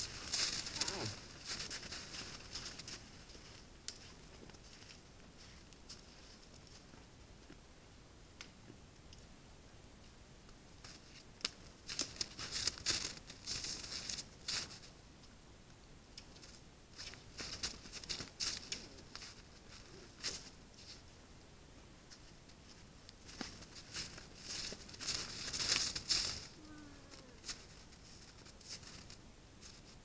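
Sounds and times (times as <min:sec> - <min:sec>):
crunching in crusted snow: 0:00.0 - 0:06.4, 0:11.9 - 0:14.9, 0:23.3 - 0:30.0
faint high-pitched whine: 0:00.0 - 0:30.0.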